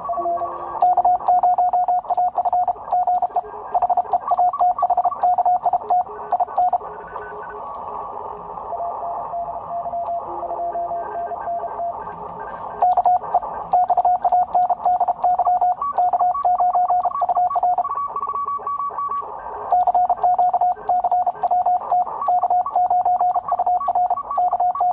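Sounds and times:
morse code tone: 0.0s - 7.4s, 12.8s - 18.8s, 19.7s - 24.9s
faint distant morse code: 0.0s - 7.7s, 8.7s - 24.9s.

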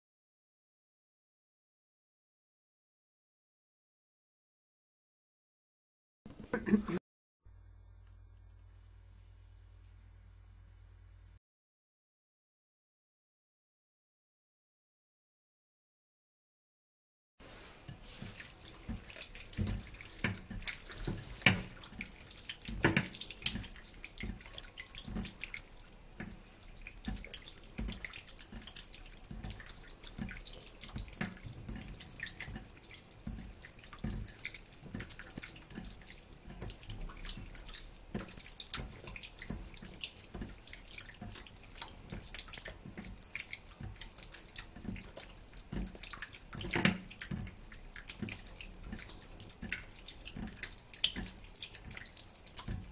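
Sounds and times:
wet squelching of kneaded meat: 17.5s - 52.9s.

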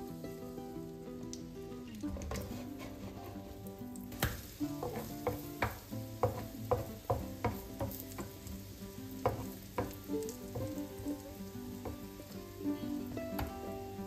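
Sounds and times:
calm background music: 0.0s - 14.0s
pancake sizzling in oil: 0.0s - 14.0s
spatula scraping pan: 2.4s - 3.8s, 4.4s - 12.2s.

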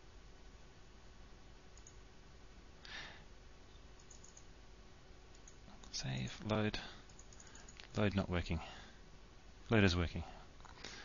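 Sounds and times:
computer mouse clicks: 1.8s - 2.0s, 4.0s - 4.5s, 5.3s - 8.0s
soft breath-like noise: 2.8s - 3.3s.

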